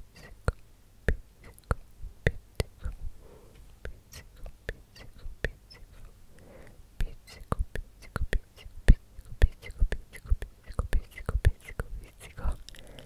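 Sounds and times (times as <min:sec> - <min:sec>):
wet mouth clicks: 0:00.2 - 0:03.0, 0:03.8 - 0:06.1, 0:07.0 - 0:13.0
breathy whisper: 0:02.6 - 0:13.0.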